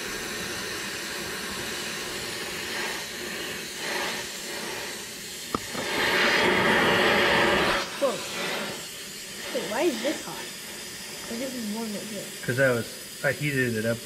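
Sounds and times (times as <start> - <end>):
cutting torch hissing: 0.0 - 14.0.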